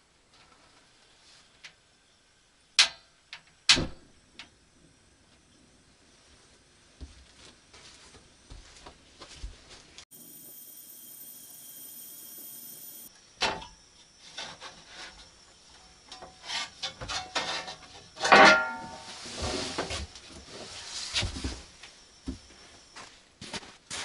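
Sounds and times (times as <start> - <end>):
metallic clank with ring: 18.2 - 19.1.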